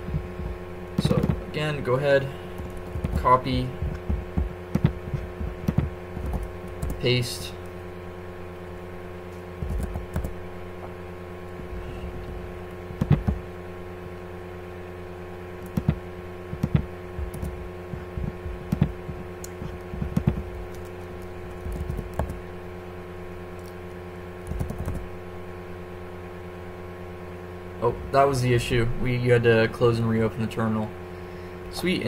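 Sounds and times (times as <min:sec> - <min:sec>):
electrical hum: 0:00.0 - 0:32.0
keyboard keystrokes and clicks: 0:02.6 - 0:07.0, 0:09.6 - 0:10.3, 0:13.0 - 0:13.4, 0:15.6 - 0:21.0, 0:21.6 - 0:22.4, 0:24.4 - 0:25.0.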